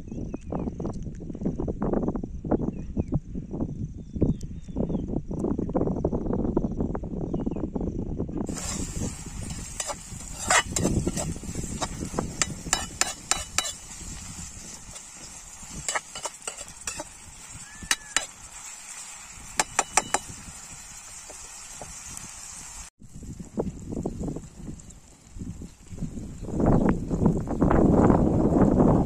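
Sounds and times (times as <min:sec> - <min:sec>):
metal spoon scraping pan: 0:08.5 - 0:17.2
faint sizzle: 0:08.5 - 0:27.3.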